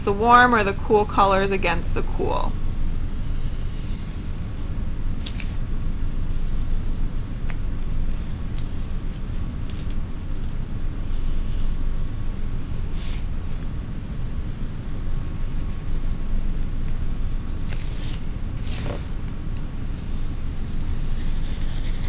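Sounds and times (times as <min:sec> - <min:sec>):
faint steady hum: 0:00.0 - 0:22.0
low background rumble: 0:00.0 - 0:22.0
marker scratching on paper: 0:16.9 - 0:19.1, 0:20.1 - 0:22.0.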